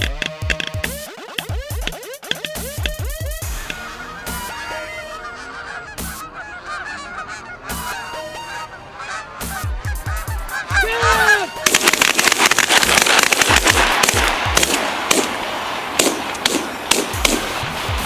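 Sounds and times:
geese honking: 0.0 - 18.0
shotgun blasts: 11.6 - 18.0.

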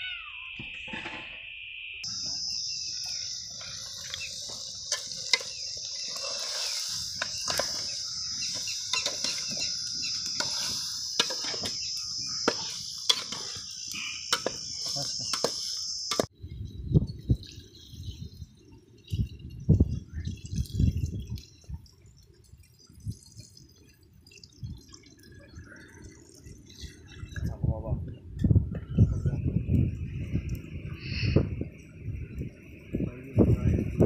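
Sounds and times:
high-pitched insect chorus: 0.0 - 21.6.

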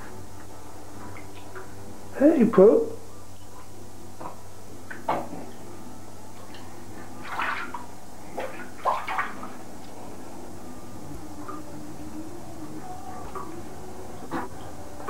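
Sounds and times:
steady low hum: 0.0 - 15.0
bathwater splashing: 6.4 - 10.4.

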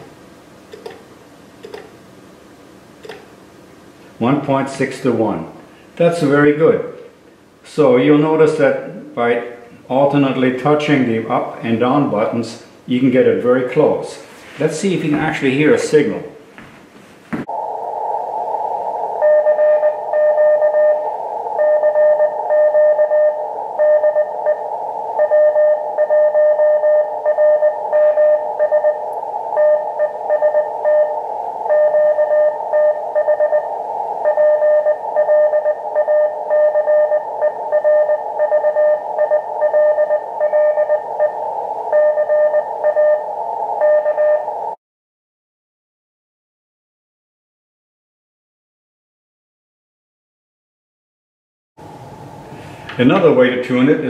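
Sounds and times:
radio band noise hiss: 17.4 - 44.8
morse code beeps: 19.2 - 44.6.

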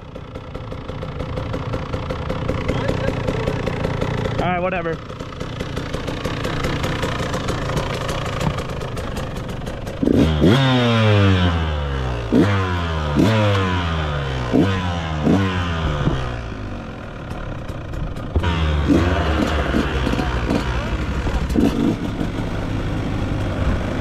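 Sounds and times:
dirt bike engine revving: 5.5 - 24.0.

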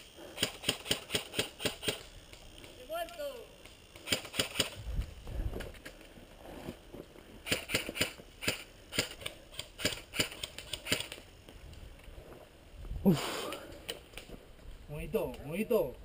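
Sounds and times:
airsoft guns firing: 0.3 - 2.2, 3.9 - 4.8, 7.4 - 11.2.

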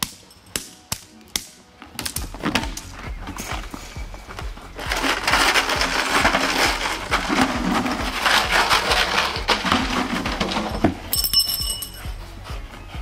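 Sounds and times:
plastic clattering and scuffling: 2.3 - 11.1.

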